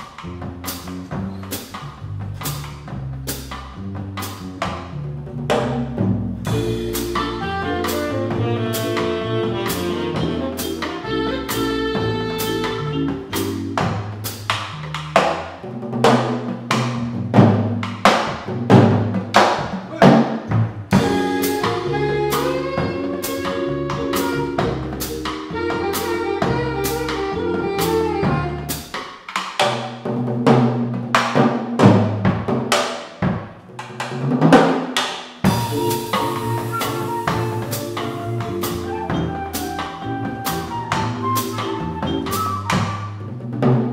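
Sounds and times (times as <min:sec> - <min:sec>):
upright bass: 0:00.0 - 0:29.0, 0:35.4 - 0:43.9
drum kit and cymbals: 0:00.0 - 0:43.9
keyboard: 0:06.4 - 0:15.1, 0:20.9 - 0:28.9, 0:35.5 - 0:43.4
woodwind holding long notes: 0:06.5 - 0:13.8, 0:19.9 - 0:28.9, 0:35.5 - 0:43.3.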